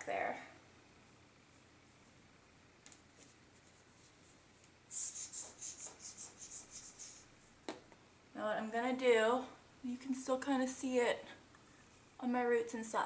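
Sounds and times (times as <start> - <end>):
fingers rustling hair: 2.9 - 7.4
powder bottle puffing: 4.9 - 7.3.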